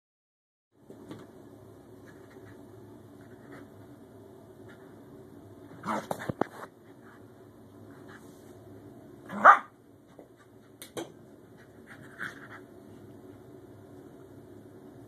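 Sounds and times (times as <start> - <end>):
dog barking: 9.3 - 9.7.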